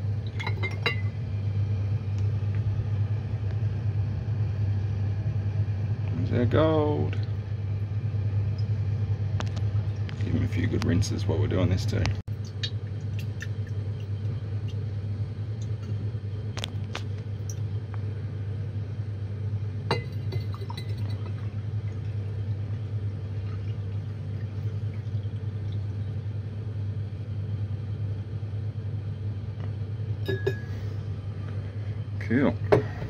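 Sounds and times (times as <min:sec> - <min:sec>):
steady low hum: 0:00.0 - 0:33.0
glass jars clinking: 0:00.4 - 0:01.1, 0:19.9 - 0:21.3, 0:30.3 - 0:30.7
liquid swirled and poured: 0:12.3 - 0:14.9, 0:20.0 - 0:26.3.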